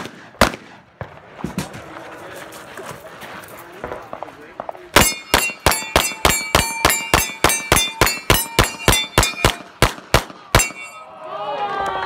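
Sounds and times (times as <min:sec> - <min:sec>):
pistol shots: 0:00.0 - 0:01.2, 0:04.6 - 0:11.0
steel plates ringing: 0:05.0 - 0:09.8, 0:10.6 - 0:11.2.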